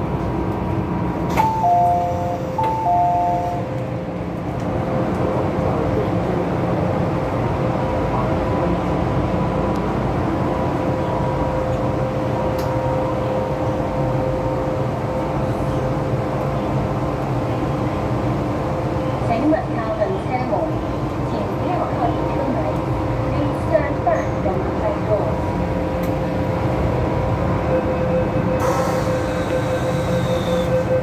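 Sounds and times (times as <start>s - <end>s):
train equipment humming: 0.0s - 31.0s.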